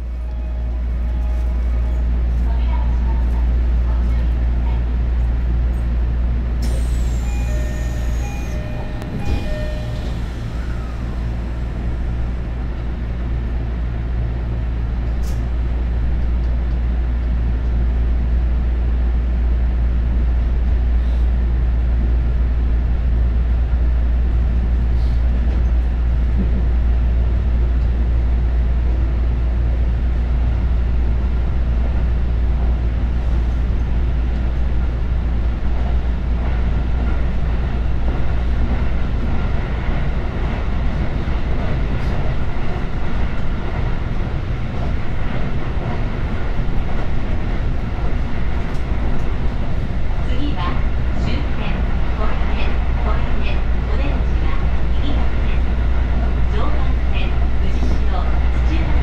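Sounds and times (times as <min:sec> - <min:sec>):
train low rumble: 0:00.0 - 0:59.0
short electronic tones: 0:07.2 - 0:10.2.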